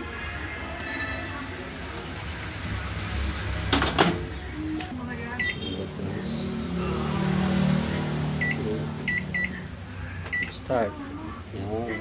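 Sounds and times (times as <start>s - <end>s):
keypad beeps: 5.4s - 5.6s, 8.4s - 9.6s, 10.3s - 10.6s.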